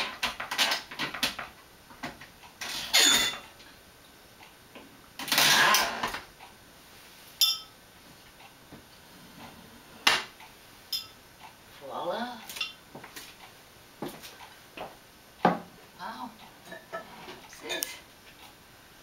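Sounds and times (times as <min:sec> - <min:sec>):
glass clink: 0:02.9 - 0:03.4, 0:07.4 - 0:07.8, 0:10.9 - 0:11.2.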